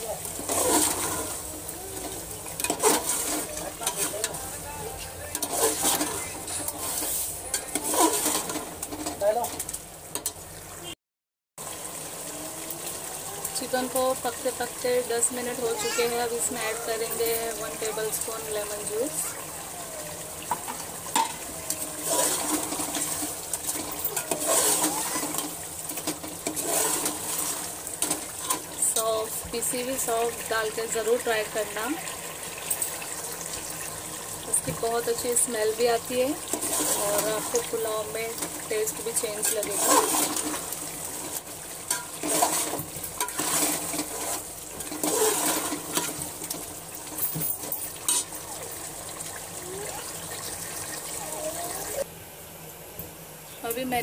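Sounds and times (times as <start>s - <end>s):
chicken sizzling in a pot: 0.0s - 10.9s, 11.6s - 52.1s
spoon scraping metal pot: 2.0s - 4.4s, 5.3s - 9.1s, 36.5s - 46.6s.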